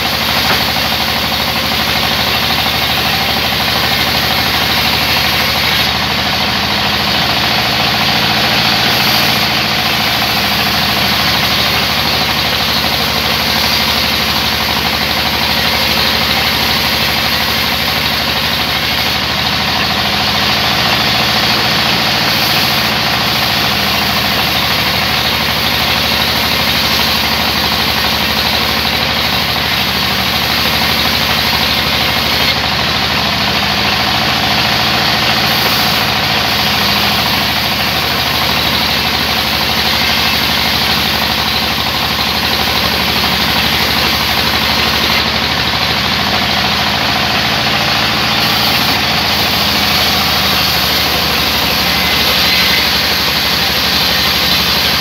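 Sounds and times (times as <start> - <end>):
band saw cutting wood: 0.0 - 55.0
saw motor humming: 0.0 - 55.0.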